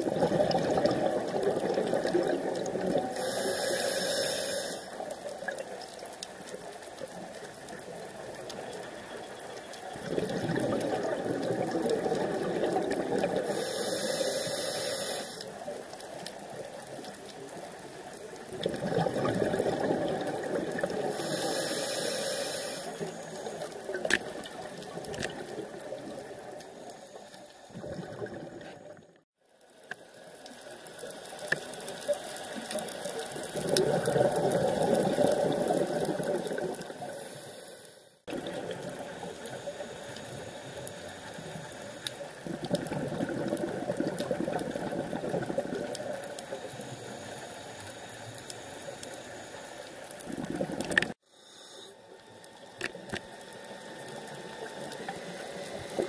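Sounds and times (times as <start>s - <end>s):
underwater regulator bubbles rushing: 0.0s - 3.0s, 10.0s - 13.4s, 18.5s - 21.1s, 42.4s - 46.2s, 50.2s - 51.2s.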